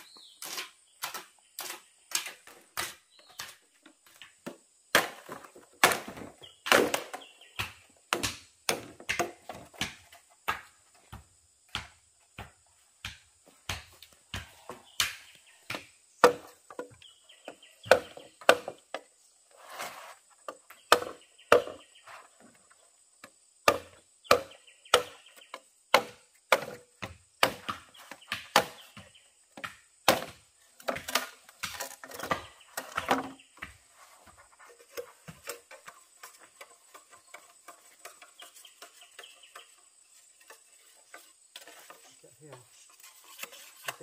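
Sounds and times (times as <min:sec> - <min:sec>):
chopping wood: 0:00.4 - 0:19.1, 0:20.7 - 0:21.8, 0:23.6 - 0:33.8.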